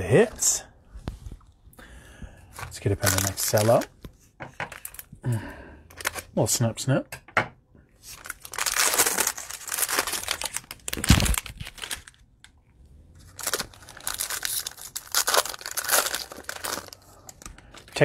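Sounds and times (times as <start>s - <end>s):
plastic wrapper crinkling and tearing: 2.7s - 4.0s, 4.7s - 5.2s, 8.0s - 12.6s, 13.2s - 18.0s.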